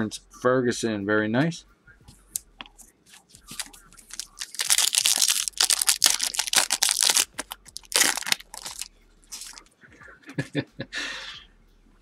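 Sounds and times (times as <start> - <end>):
foil wrapper crinkling and tearing: 3.1 - 9.7.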